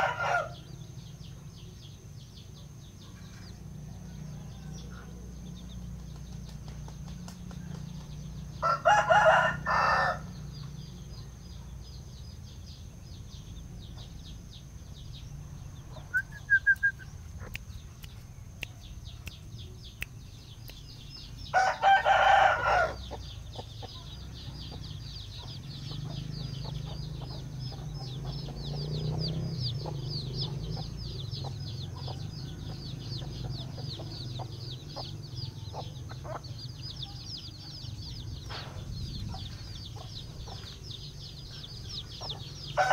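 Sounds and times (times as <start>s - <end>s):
rooster crowing: 0.0s - 0.7s, 8.6s - 10.4s, 21.5s - 23.1s.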